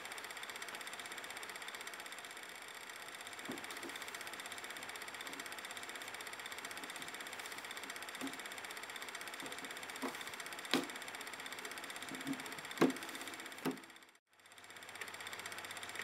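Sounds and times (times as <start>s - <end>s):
film projector rattling: 0.0s - 16.0s
sharp knocks: 10.0s - 11.0s.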